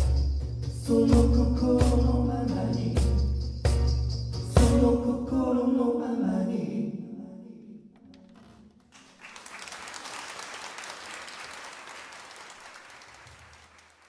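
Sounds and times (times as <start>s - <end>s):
audience applause: 8.9s - 14.0s.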